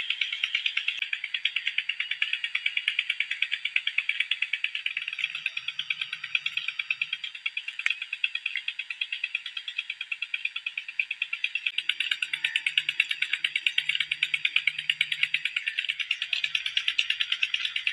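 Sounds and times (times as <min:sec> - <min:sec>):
frogs trilling: 0:00.0 - 0:17.9.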